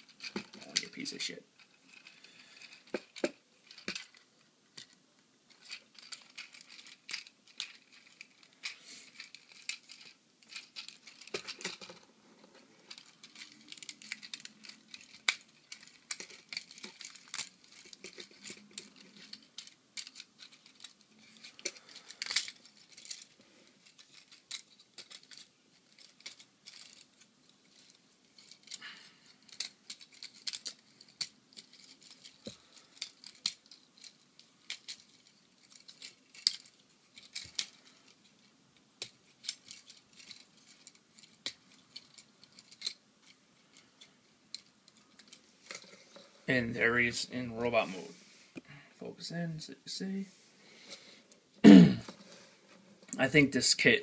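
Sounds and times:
plastic toy parts clicking: 0.0 - 12.0, 12.9 - 43.8, 44.5 - 46.0.

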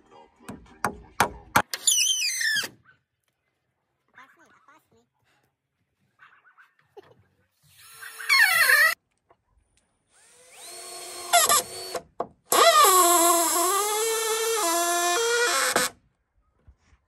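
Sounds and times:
power drill running: 7.8 - 9.0, 10.1 - 15.9.

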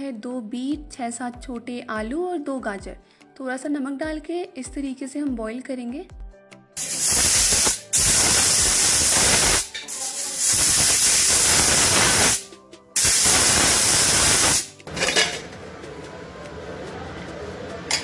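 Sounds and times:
pressure cooker whistling: 6.8 - 12.4.

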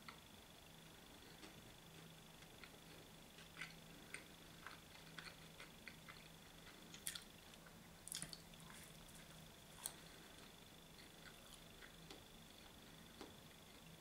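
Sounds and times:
wet chewing and mouth smacks: 2.6 - 7.3, 8.1 - 12.2.

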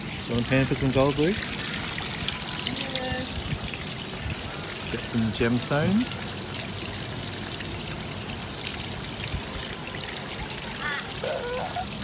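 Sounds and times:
water trickling and pouring: 0.0 - 12.0.

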